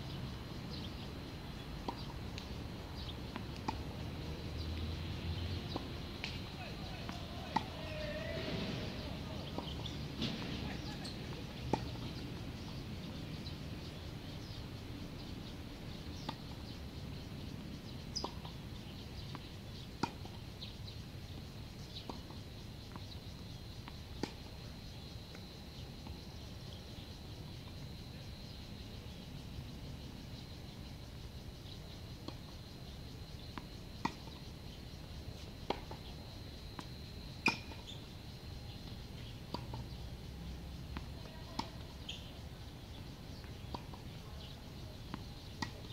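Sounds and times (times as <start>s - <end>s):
low outdoor background hum: 0.0s - 45.9s
tennis balls hit with rackets: 1.8s - 4.0s, 5.6s - 13.4s, 36.8s - 37.9s, 40.9s - 42.3s, 45.1s - 45.9s.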